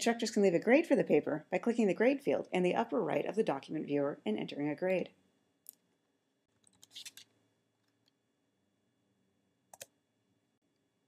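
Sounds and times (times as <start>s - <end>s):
keyboard and mouse clicks: 6.6s - 8.2s, 9.7s - 10.0s.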